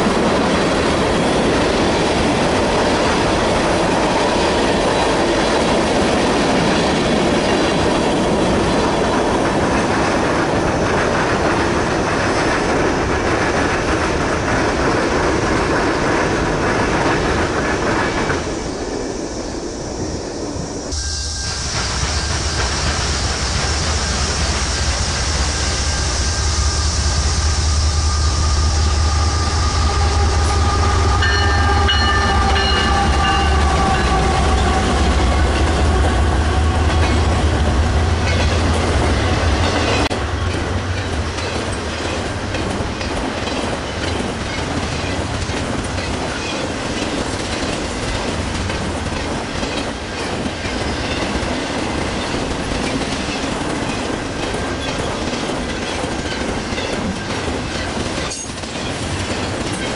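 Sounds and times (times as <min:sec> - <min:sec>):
train cars clacking over rails: 0:00.0 - 0:18.7, 0:20.9 - 0:59.9
freight train rumble: 0:00.0 - 0:59.9
high ringing tones: 0:21.0 - 0:22.4, 0:26.0 - 0:34.3.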